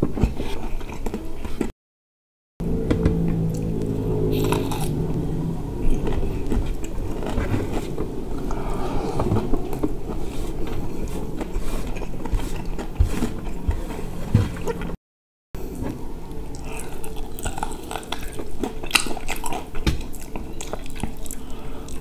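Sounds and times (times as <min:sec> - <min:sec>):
close-up chewing: 0:00.1 - 0:01.7, 0:05.9 - 0:14.9, 0:16.3 - 0:22.0
steady low rumble: 0:02.6 - 0:15.0.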